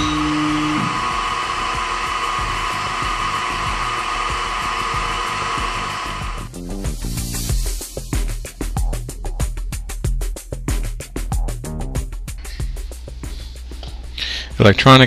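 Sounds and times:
milling machine spindle whirring: 0.0 - 6.5
music with a beat: 2.6 - 14.2.

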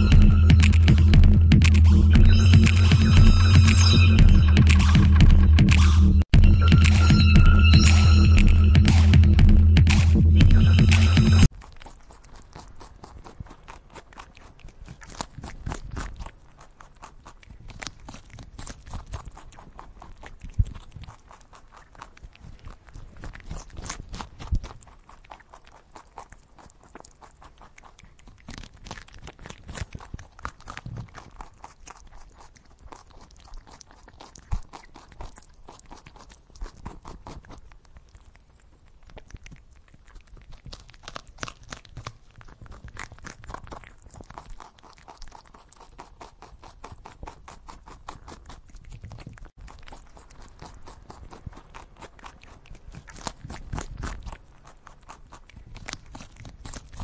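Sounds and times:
hare chewing grass: 11.5 - 57.0.

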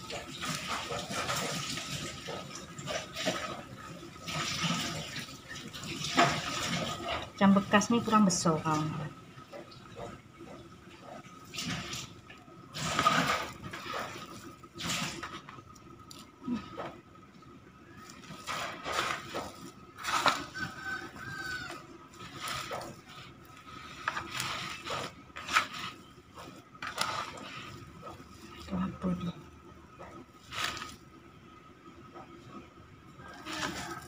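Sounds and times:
hand scraping plastic bowl: 12.7 - 15.5, 18.0 - 29.0, 30.0 - 31.1, 33.4 - 34.0
hands squishing food in a bowl: 17.8 - 29.2, 30.0 - 31.1, 33.4 - 34.0.

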